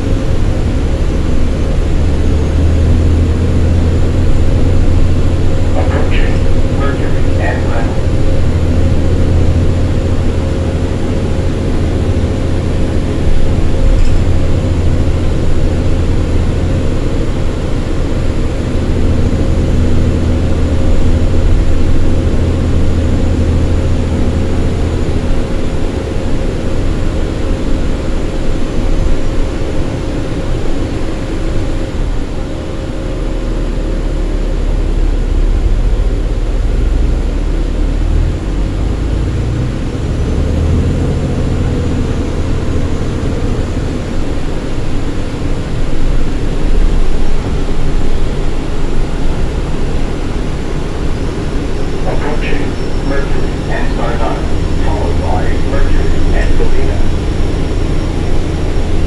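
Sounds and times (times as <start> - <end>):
bus engine hum: 0.0 - 59.0
steady whine: 0.0 - 59.0.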